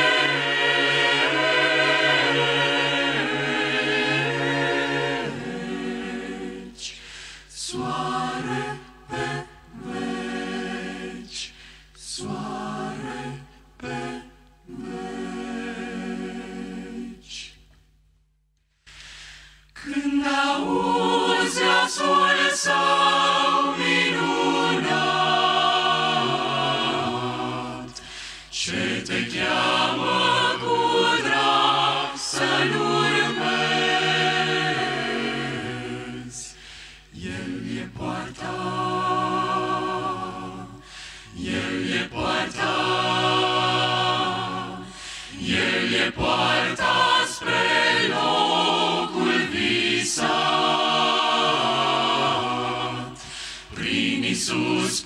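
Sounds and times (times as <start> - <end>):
vocal group singing a hymn: 0.0 - 17.7, 18.9 - 55.0.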